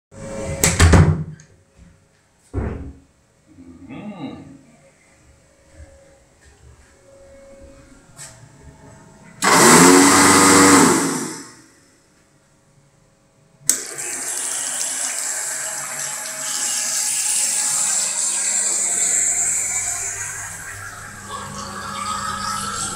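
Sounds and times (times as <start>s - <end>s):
electric hand dryer blowing: 9.4s - 11.6s, 13.7s - 22.9s
water running into a sink: 13.8s - 21.4s.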